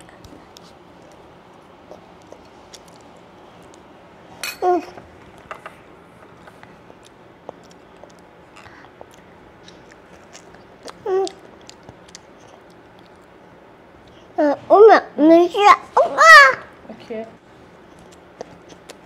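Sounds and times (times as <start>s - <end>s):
toddler chewing: 1.9s - 3.8s, 6.5s - 13.4s, 17.9s - 19.0s.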